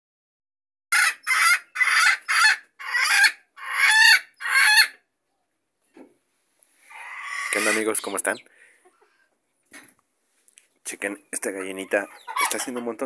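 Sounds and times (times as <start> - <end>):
chicken squawking: 0.9 - 5.1, 6.8 - 9.4, 11.4 - 13.0.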